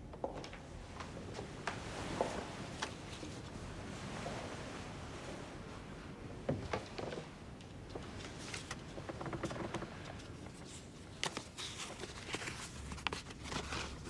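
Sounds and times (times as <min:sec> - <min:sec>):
paper crinkling and rustling: 0:10.4 - 0:14.0.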